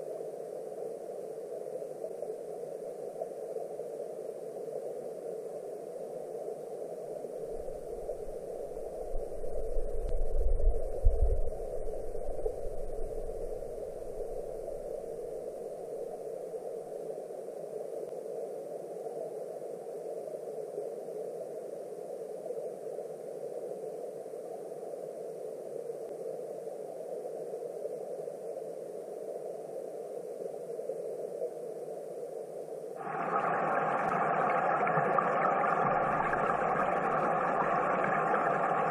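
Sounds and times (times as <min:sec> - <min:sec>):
muffled stream water rushing: 0:07.4 - 0:16.2, 0:33.0 - 0:38.9.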